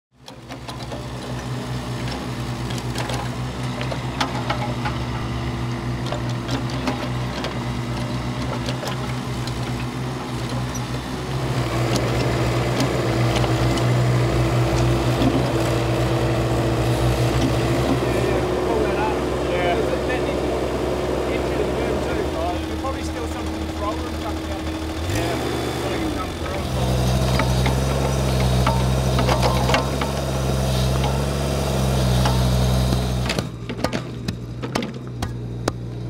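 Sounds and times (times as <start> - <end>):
clicks and clanks: 0.2 - 1.4, 2.0 - 5.3, 6.0 - 10.9, 27.1 - 30.2, 32.1 - 35.9
excavator diesel engine running: 0.2 - 36.0.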